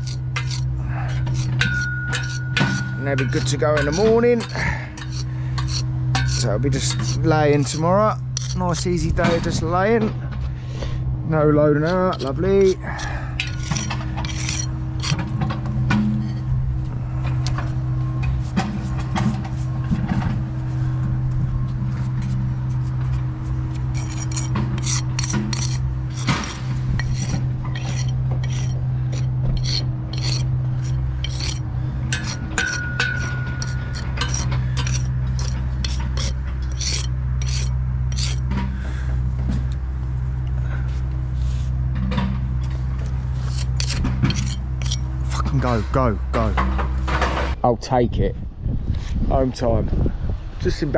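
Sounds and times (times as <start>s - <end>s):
brush sweeping brick: 0.0s - 7.8s, 8.4s - 8.9s, 11.8s - 15.2s, 22.0s - 38.4s, 43.4s - 45.4s
metal jointer scraping mortar: 0.0s - 10.0s, 11.6s - 16.5s, 22.0s - 38.6s, 43.0s - 45.8s
steady low hum: 0.0s - 47.6s.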